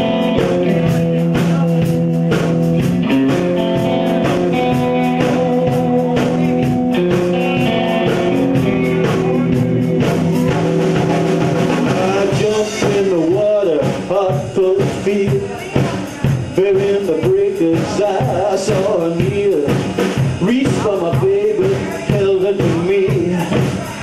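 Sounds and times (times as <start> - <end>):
electric guitar lead: 0.0 - 15.4
drums keeping a steady beat: 0.0 - 24.0.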